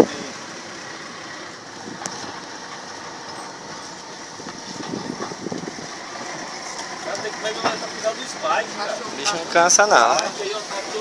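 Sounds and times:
vehicle road and engine noise: 0:00.0 - 0:11.0.

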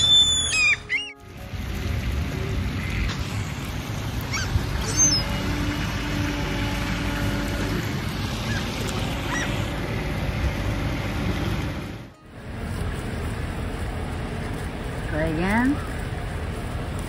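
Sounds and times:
high falling bird calls: 0:00.0 - 0:01.2, 0:04.3 - 0:05.4
low background rumble: 0:00.0 - 0:17.0.

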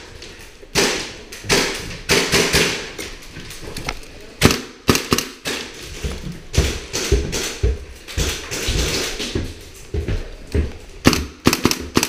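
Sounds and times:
sharp knocks and thuds: 0:04.4 - 0:12.0.

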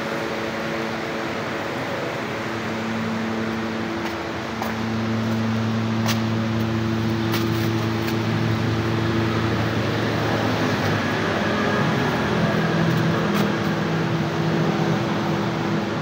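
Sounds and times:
machine drone humming: 0:00.0 - 0:16.0.

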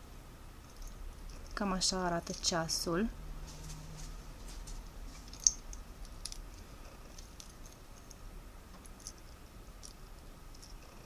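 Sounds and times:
metal watch bracelet clinking: 0:05.2 - 0:10.9.

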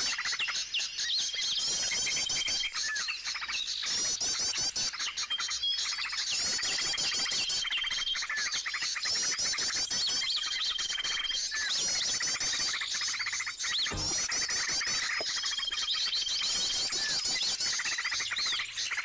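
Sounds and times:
small birds chirping: 0:00.0 - 0:19.0.

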